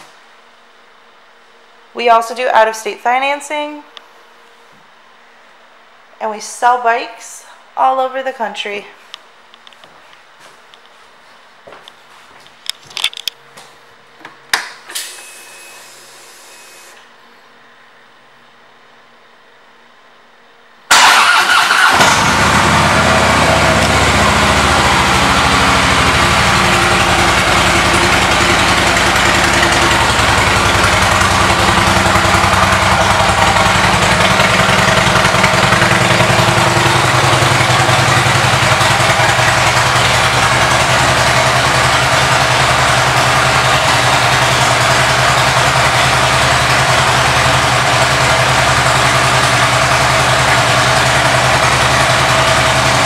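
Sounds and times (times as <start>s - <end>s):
motorcycle engine starting and idling: 20.9s - 53.0s.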